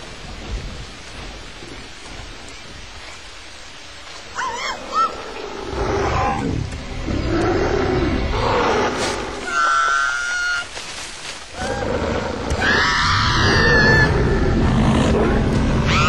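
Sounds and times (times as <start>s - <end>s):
steady rain: 0.0s - 16.0s
large beast growling: 11.6s - 16.0s.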